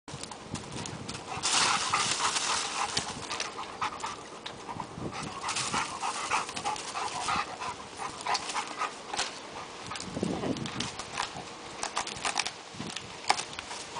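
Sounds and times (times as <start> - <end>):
paws scratching on tree trunk: 0.1 - 13.9
dog panting: 1.1 - 11.4.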